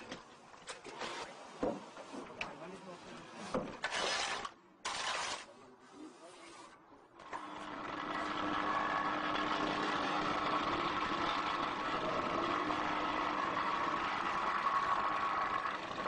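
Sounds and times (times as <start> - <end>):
construction machinery engine drone: 7.0 - 16.0.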